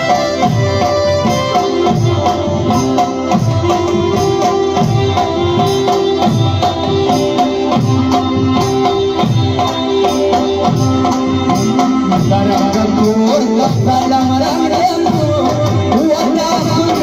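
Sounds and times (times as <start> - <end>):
held melody line: 0.0 - 17.0.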